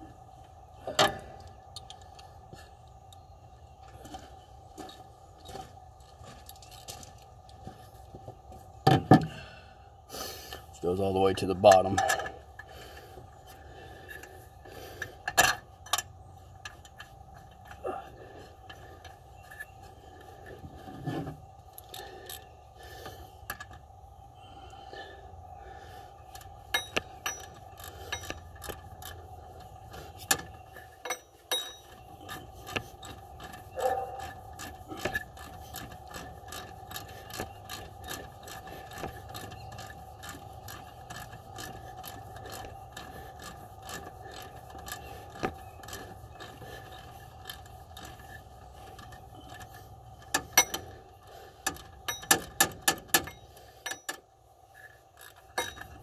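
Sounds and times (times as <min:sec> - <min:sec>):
steady hum: 0:00.0 - 0:56.0
hand ratchet clicking: 0:26.3 - 0:56.0.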